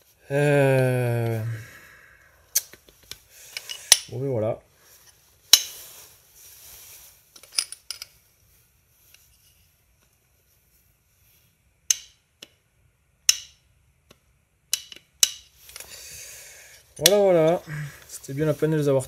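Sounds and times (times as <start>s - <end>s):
metallic clicks and clinks: 3.5s - 4.1s.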